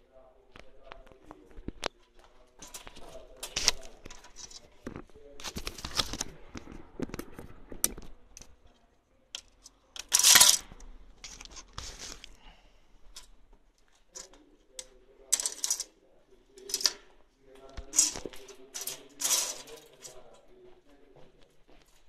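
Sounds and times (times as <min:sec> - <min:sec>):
arrows clicking and rattling: 0:09.4 - 0:12.3, 0:14.2 - 0:15.9, 0:16.6 - 0:17.1, 0:17.8 - 0:20.3
arrows scraping out of target: 0:17.9 - 0:20.0.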